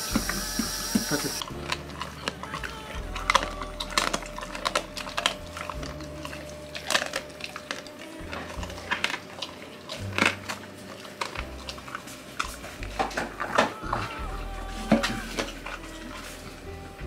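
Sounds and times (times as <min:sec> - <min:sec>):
dog crunching food: 0:00.0 - 0:16.9
soft background music: 0:00.0 - 0:17.0.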